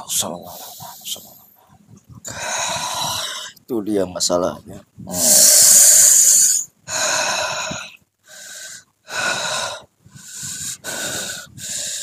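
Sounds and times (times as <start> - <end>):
man breathing heavily: 2.2 - 3.6, 5.1 - 12.0.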